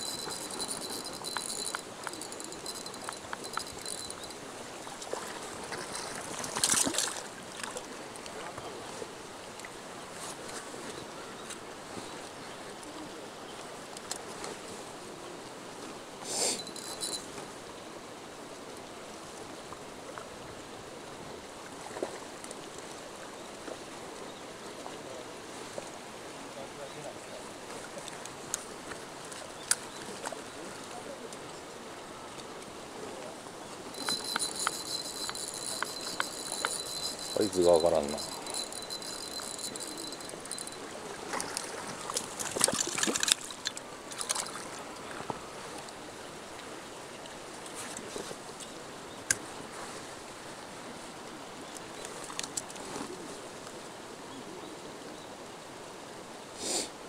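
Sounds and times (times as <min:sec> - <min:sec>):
faint ticks and clicks: 0:00.0 - 0:04.4, 0:33.9 - 0:44.6.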